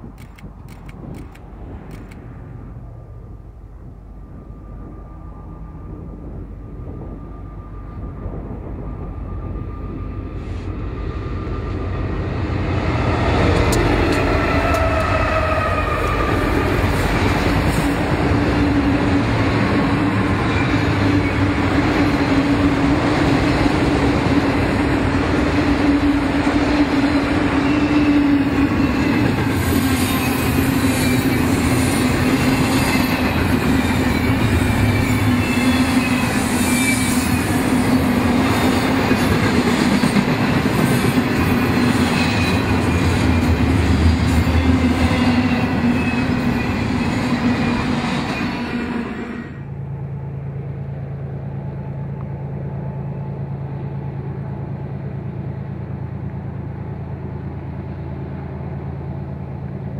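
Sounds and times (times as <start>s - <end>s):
train wheels clattering on rail: 12.7s - 48.7s
high wheel squeals: 27.1s - 38.8s.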